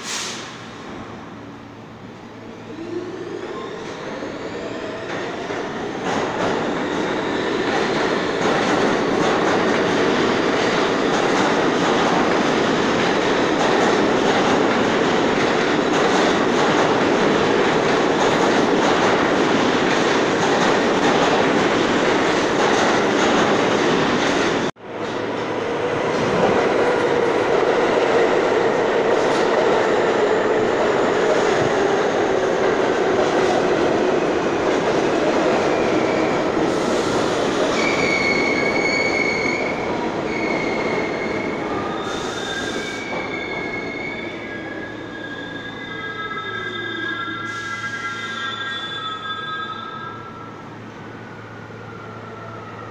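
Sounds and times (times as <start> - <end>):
subway train rumbling past: 0.0 - 52.9
train wheels squealing: 35.8 - 50.6.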